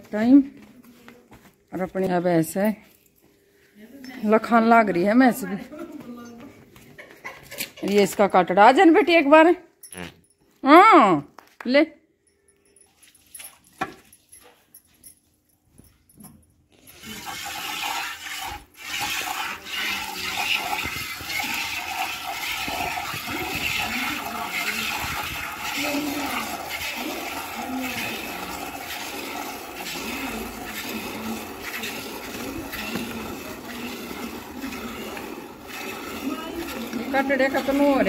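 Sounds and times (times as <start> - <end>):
milk squirting into steel bucket: 16.9 - 38.0.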